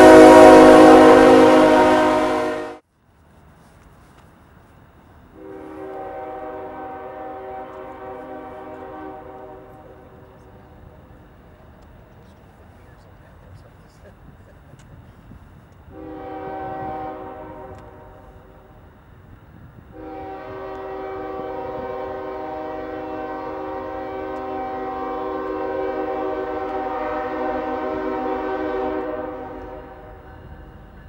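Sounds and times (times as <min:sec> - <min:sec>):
locomotive air horn blasts: 0:00.0 - 0:02.8, 0:05.4 - 0:10.3, 0:15.9 - 0:18.5, 0:19.9 - 0:30.5.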